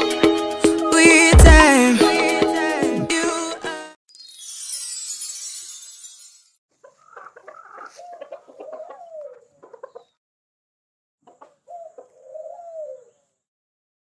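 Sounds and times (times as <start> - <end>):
pheasants clucking and calling: 6.8 - 10.2, 11.2 - 13.4.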